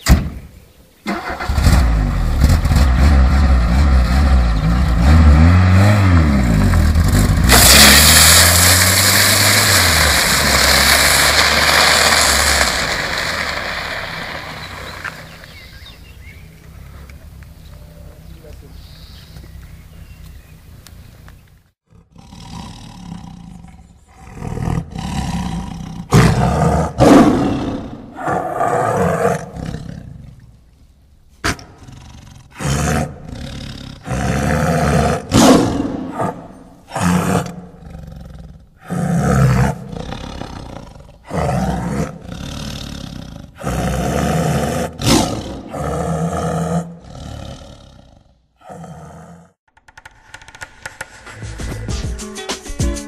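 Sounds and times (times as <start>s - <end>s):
dog growling ferociously: 31.8s - 49.6s.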